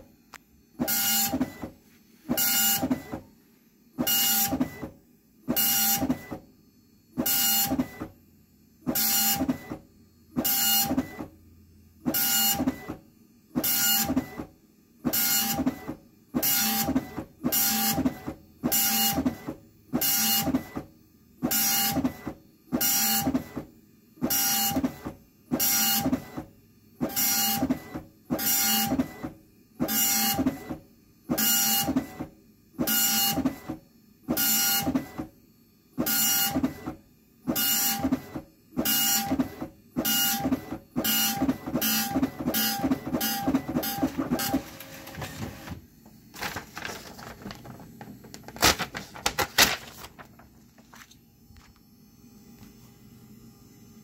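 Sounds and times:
dot-matrix printer head buzzing: 0.8 - 1.7, 37.5 - 49.0.

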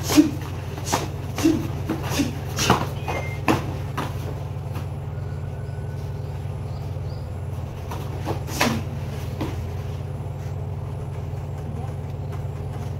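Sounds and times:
low engine-like hum: 0.0 - 12.9
thuds on foam mats: 0.2 - 4.9.

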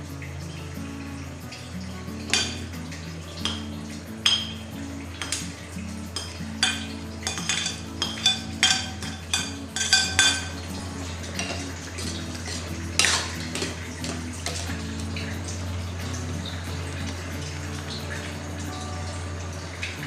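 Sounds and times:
stirring porridge: 1.9 - 17.2
metal spoon clinking on pot: 2.2 - 2.8, 3.4 - 14.9.

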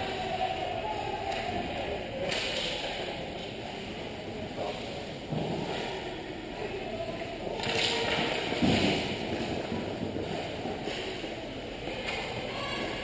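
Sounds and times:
rink background noise: 0.0 - 13.0.

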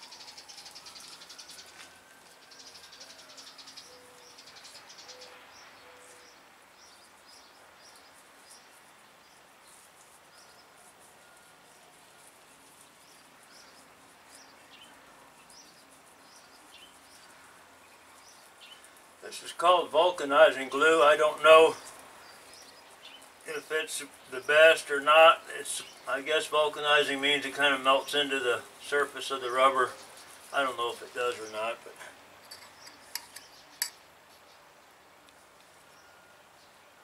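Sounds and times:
birds chirping: 0.0 - 37.0
faint scratchy rubbing: 25.6 - 33.5.

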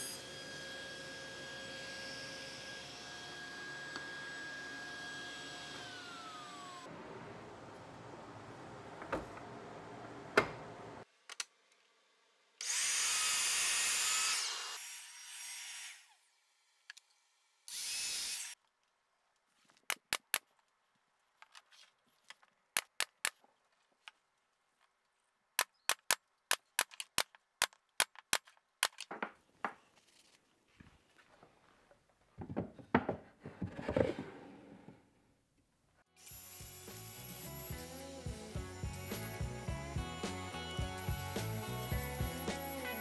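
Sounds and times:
miter saw cutting plywood: 0.0 - 6.9, 36.2 - 40.6
wooden drawer sliding: 33.2 - 35.0.

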